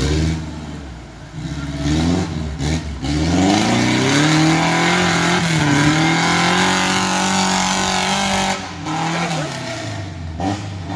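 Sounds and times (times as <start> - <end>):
off-road vehicle engine revving: 0.0 - 10.9.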